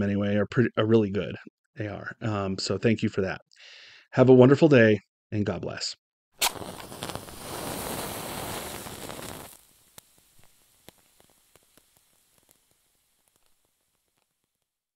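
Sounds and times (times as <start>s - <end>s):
lighter flame hissing: 6.4s - 14.3s
wick crackling: 6.4s - 14.7s.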